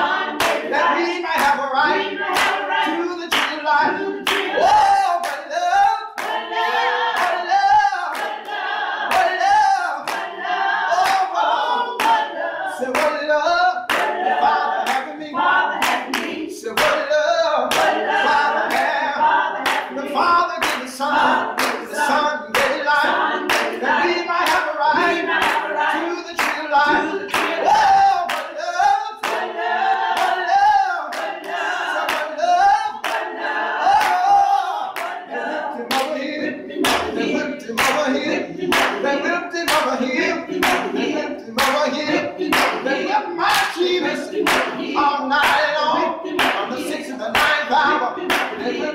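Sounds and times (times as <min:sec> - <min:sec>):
group singing gospel song: 0:00.0 - 0:48.9
hand clapping: 0:00.4 - 0:00.7, 0:01.3 - 0:01.7, 0:02.3 - 0:05.5, 0:06.2 - 0:06.5, 0:07.1 - 0:10.4, 0:11.0 - 0:11.4, 0:12.0 - 0:12.3, 0:12.9 - 0:13.3, 0:13.9 - 0:15.2, 0:15.8 - 0:17.1, 0:17.7 - 0:18.1, 0:18.7 - 0:19.0, 0:19.6 - 0:23.8, 0:24.4 - 0:24.8, 0:25.4 - 0:28.6, 0:29.2 - 0:29.5, 0:30.2 - 0:30.4, 0:31.1 - 0:32.4, 0:33.0 - 0:33.4, 0:34.0 - 0:34.3, 0:35.0 - 0:35.2, 0:35.9 - 0:36.2, 0:36.8 - 0:37.2, 0:37.8 - 0:48.8.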